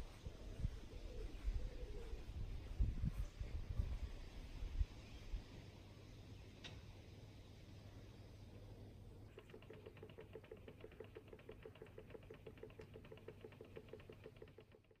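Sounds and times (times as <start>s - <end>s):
small machine rapid ticking: 9.3s - 15.0s.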